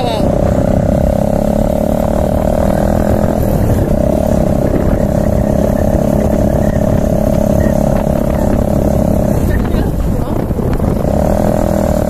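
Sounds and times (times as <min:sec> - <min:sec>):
motorcycle engine running: 0:00.0 - 0:12.0
wind rumble on microphone: 0:00.0 - 0:12.0.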